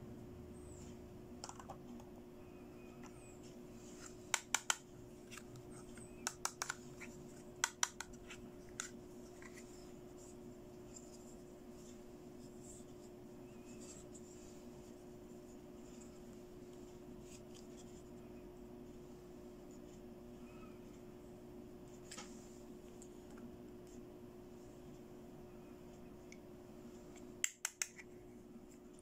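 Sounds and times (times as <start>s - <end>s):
faint steady hum: 0.0s - 29.0s
soft plastic rubbing: 8.1s - 21.1s.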